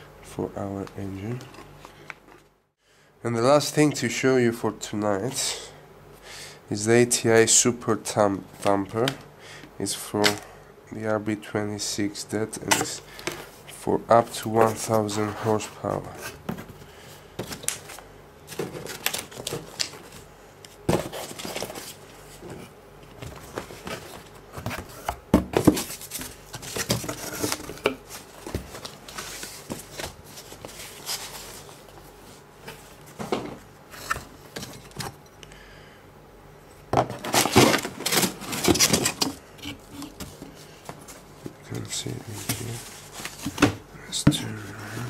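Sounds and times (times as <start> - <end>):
cardboard packaging rustling: 17.4 - 33.3, 37.1 - 43.8.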